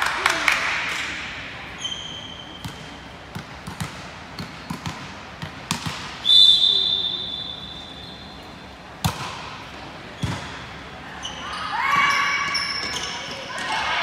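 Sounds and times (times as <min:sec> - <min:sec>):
ball bouncing on gym floor: 0:02.6 - 0:06.2, 0:09.0 - 0:09.6, 0:10.2 - 0:10.6
referee's whistle blast: 0:06.2 - 0:08.2.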